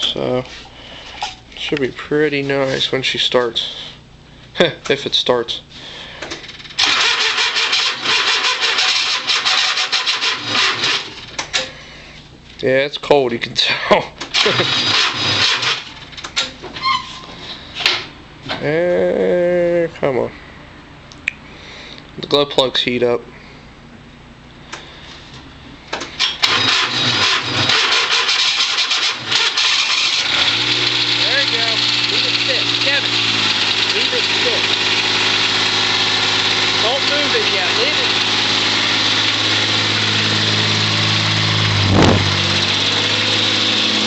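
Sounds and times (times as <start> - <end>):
diesel engine cranking on starter: 6.2 - 11.7, 14.3 - 16.4, 26.1 - 44.0.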